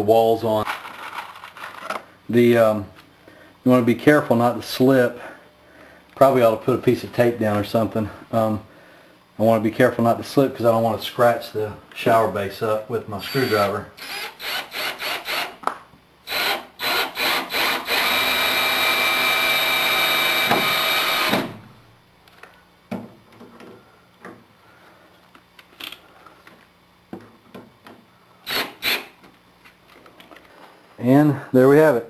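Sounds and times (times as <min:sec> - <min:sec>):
power screwdriver driving screws: 0:13.3 - 0:15.6, 0:16.3 - 0:21.5, 0:28.5 - 0:29.1.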